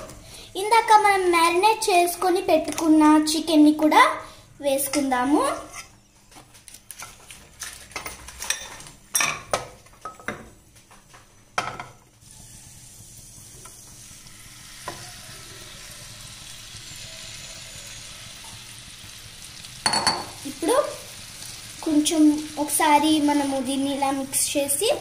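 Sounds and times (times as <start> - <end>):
chicken sizzling in frying pan: 12.2 - 25.0.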